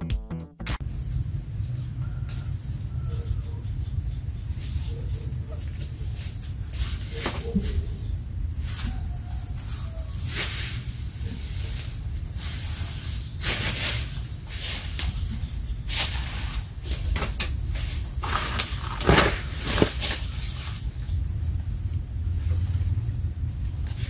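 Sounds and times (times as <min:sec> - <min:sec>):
leaves rustling: 0:04.4 - 0:24.0
footsteps crunching in dry leaves: 0:17.7 - 0:21.0.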